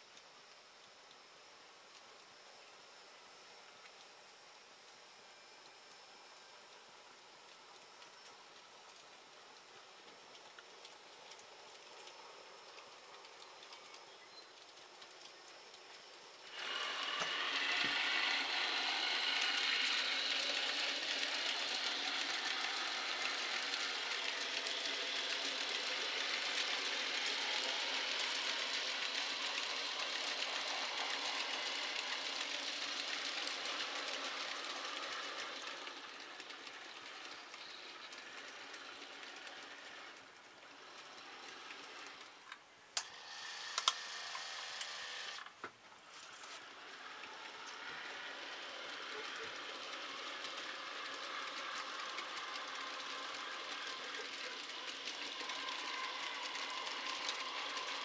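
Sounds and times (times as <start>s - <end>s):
model train wheels rumbling on rail: 1.2s - 58.0s
sharp clicks: 43.7s - 45.6s.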